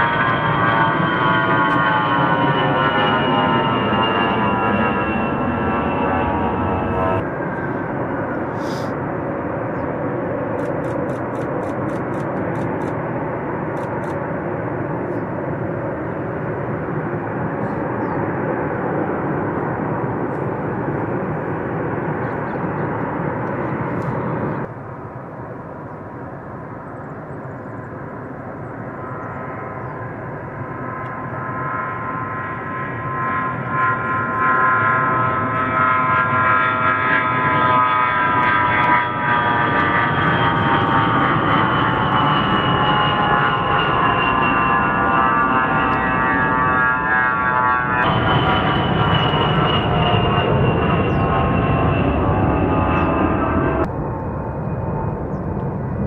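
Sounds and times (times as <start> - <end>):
jet engine whine: 0.0 - 56.0.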